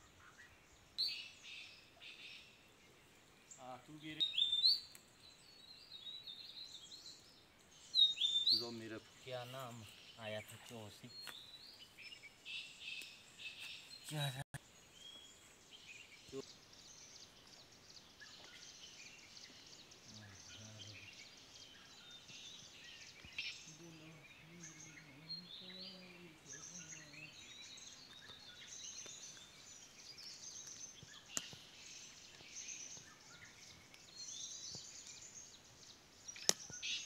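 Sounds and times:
birds chirping: 0.0 - 37.0.

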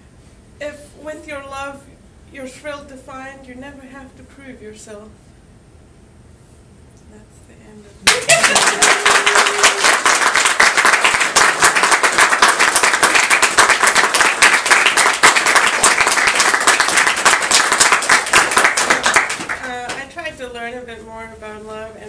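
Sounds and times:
audience applauding: 8.1 - 19.7.

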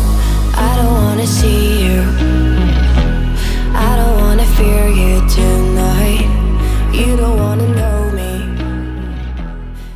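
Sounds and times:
background pop song: 0.0 - 9.9.

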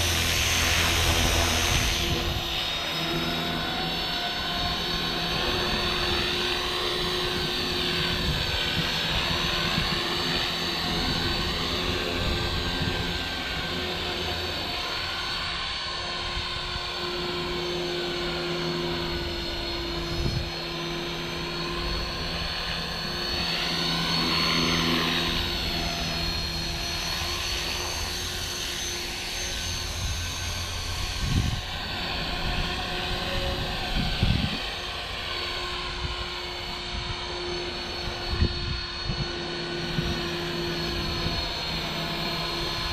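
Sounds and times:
wind rumble on microphone: 0.0 - 14.5, 19.0 - 20.7, 29.5 - 34.9, 35.6 - 42.9
model helicopter rotor whine: 0.0 - 42.9.

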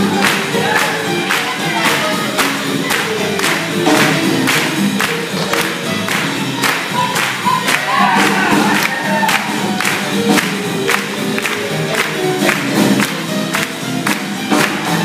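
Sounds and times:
swing band playing: 0.0 - 15.0.

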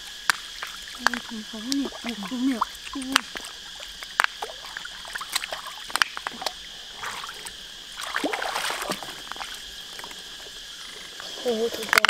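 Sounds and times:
insect drone: 0.0 - 12.0
water splashing and dribbling: 0.0 - 12.0
mussel shells clicking: 0.3 - 6.6.

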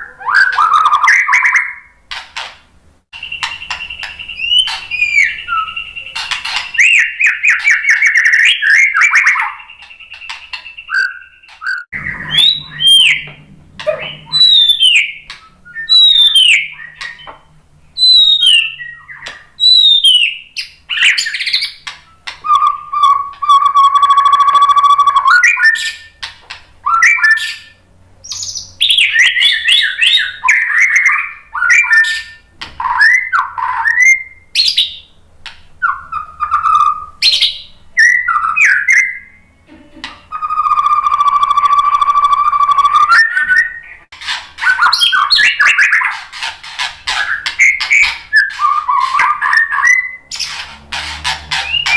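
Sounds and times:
bird singing whistled song: 0.0 - 1.9, 3.2 - 35.1, 35.8 - 39.6, 40.3 - 46.1, 47.1 - 50.5, 51.5 - 51.9.

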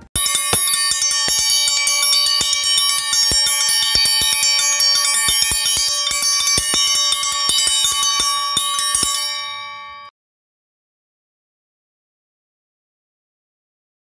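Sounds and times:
chimes jangling: 0.0 - 10.1.

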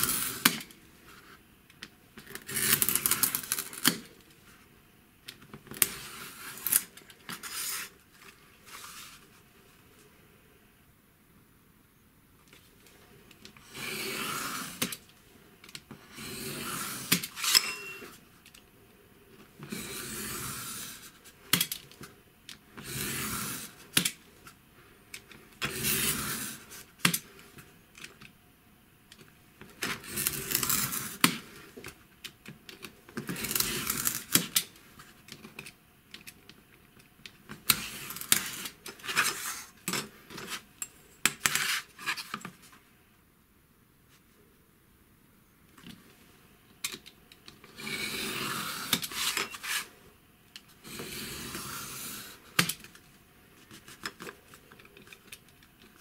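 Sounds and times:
knife scraping board: 13.6 - 14.9, 16.1 - 18.2, 19.7 - 21.1, 22.8 - 23.8, 25.6 - 26.8, 47.7 - 49.9, 50.8 - 52.4.

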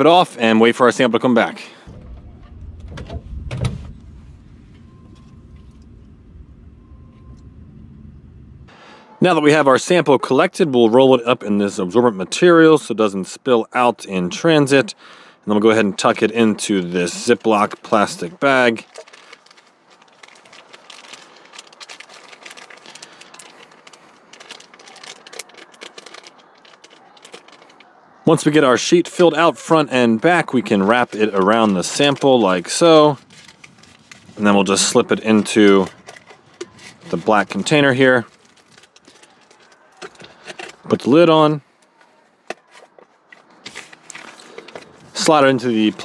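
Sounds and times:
steady low rumble: 1.8 - 8.7
plastic bag crinkling: 16.0 - 28.0, 30.4 - 41.0, 42.6 - 46.0.

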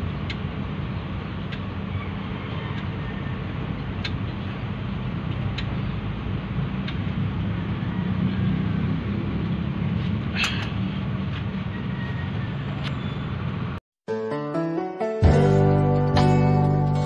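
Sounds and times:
engine humming: 0.0 - 13.8
sharp metallic clicks: 3.8 - 4.3, 6.8 - 7.2.

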